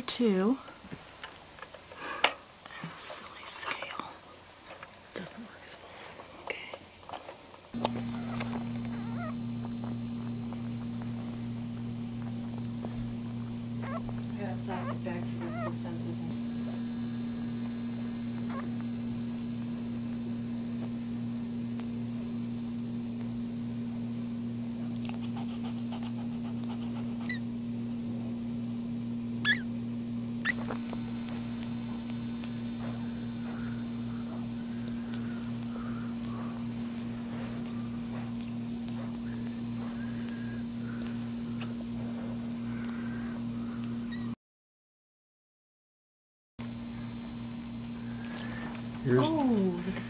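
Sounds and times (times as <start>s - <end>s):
low electrical hum: 0.0s - 44.4s, 46.6s - 50.0s
puppies squeaking: 8.1s - 9.4s, 13.8s - 14.1s, 14.8s - 15.8s, 29.4s - 29.7s.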